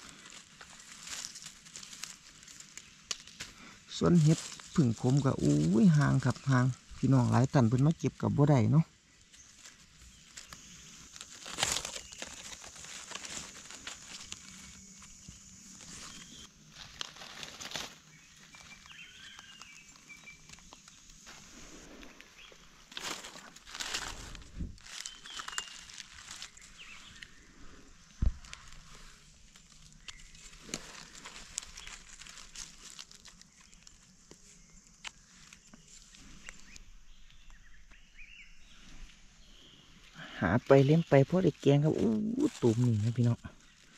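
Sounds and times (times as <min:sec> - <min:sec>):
dry leaves rustling and crackling: 0:00.0 - 0:43.9.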